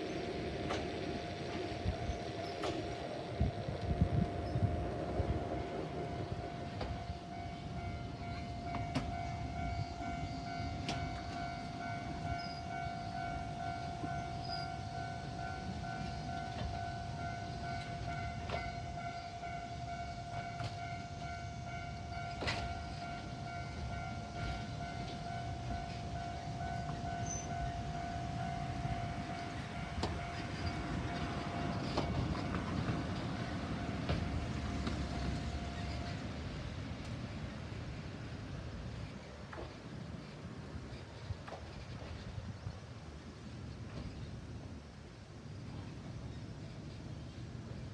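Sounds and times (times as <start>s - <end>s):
level-crossing warning bell ringing: 0.0s - 37.0s
cable cars rumbling on rails: 0.0s - 47.9s.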